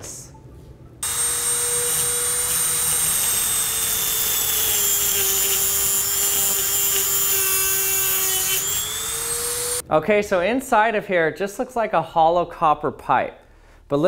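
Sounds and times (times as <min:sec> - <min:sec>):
rotary tool cutting metal pipe: 0:01.0 - 0:09.8.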